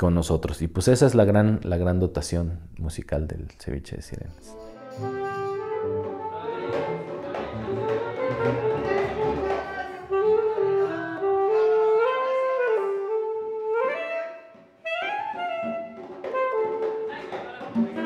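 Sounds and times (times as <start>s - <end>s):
melody of long held notes: 4.5s - 16.8s
band accompaniment: 4.5s - 18.0s.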